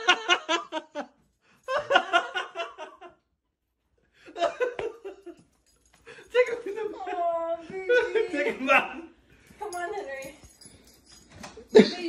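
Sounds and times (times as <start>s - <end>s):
person speaking: 6.2s - 9.0s.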